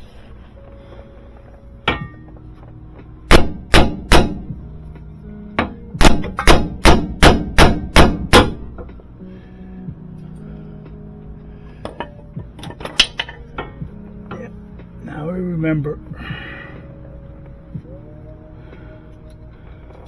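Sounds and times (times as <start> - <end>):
hammer striking metal: 1.8 - 2.3, 3.3 - 4.5, 5.6 - 8.9.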